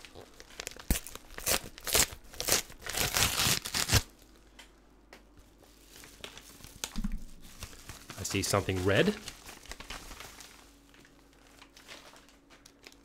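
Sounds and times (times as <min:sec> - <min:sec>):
paper tearing: 0:00.6 - 0:04.1.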